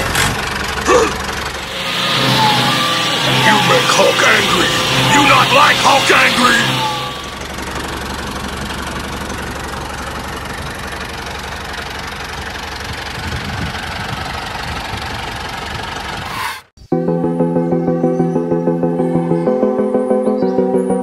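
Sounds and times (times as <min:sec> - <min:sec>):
engine idling with knocking clatter: 0:00.0 - 0:16.3.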